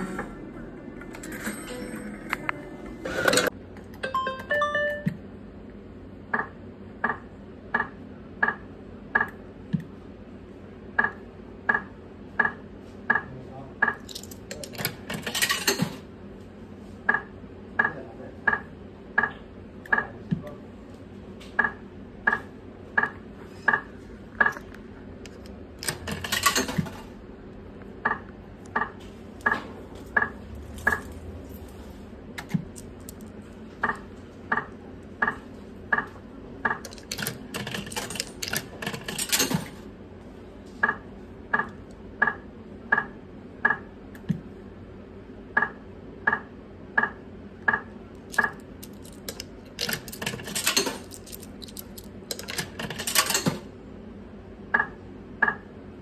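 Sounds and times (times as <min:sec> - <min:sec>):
slot machine electronic beeps: 0:01.1 - 0:05.2.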